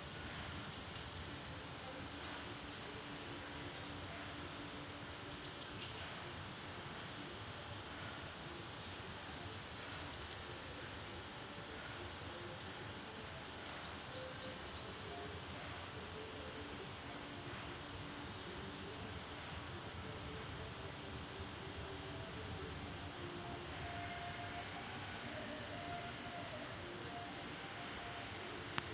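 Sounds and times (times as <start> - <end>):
steady outdoor hiss: 0.0 - 28.9
birds chirping: 27.3 - 28.9.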